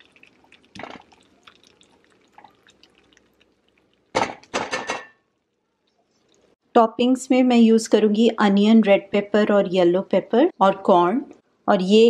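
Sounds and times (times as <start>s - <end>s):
sauce simmering and popping: 0.0s - 6.6s.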